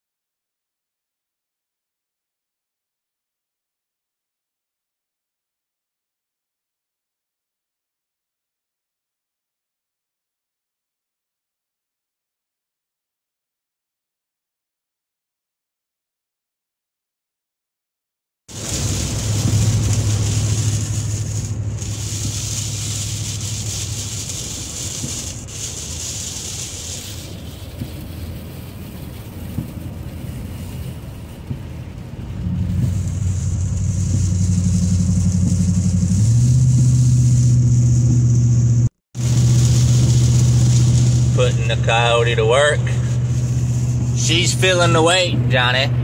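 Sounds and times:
truck engine droning: 0:18.5 - 0:46.0
tyre hiss on wet road: 0:18.5 - 0:46.0.

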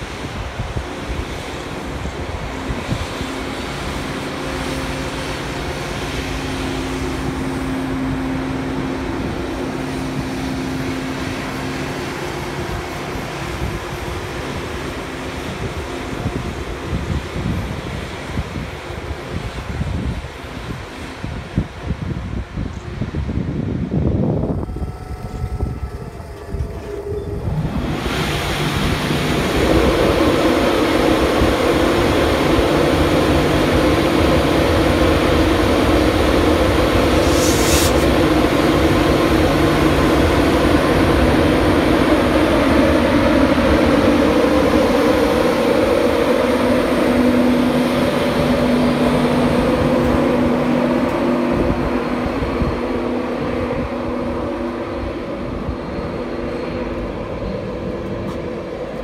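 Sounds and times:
electric locomotive hum: 0:00.0 - 0:59.0
wheels rumbling on rail: 0:00.0 - 0:59.0
brief hiss: 0:37.2 - 0:38.2.

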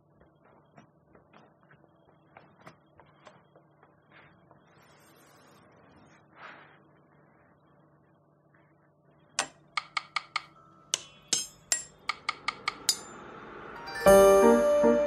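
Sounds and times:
piano music: 0:13.7 - 0:15.0.

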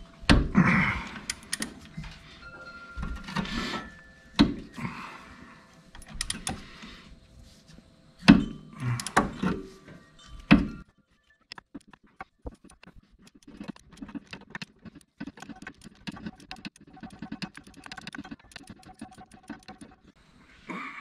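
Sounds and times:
socket wrench clicking and clanking: 0:08.3 - 0:09.6.

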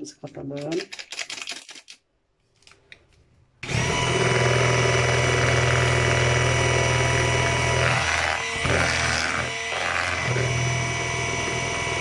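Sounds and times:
electric hand blender running: 0:03.6 - 0:12.0.

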